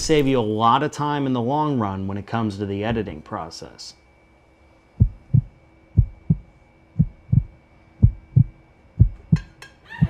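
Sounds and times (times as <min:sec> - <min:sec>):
heartbeat thumps: 0:05.0 - 0:09.5.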